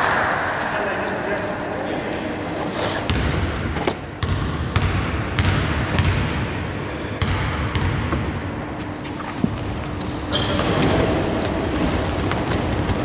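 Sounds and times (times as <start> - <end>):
basketball bouncing on hardwood: 3.1 - 3.5, 4.2 - 6.3, 7.2 - 8.3.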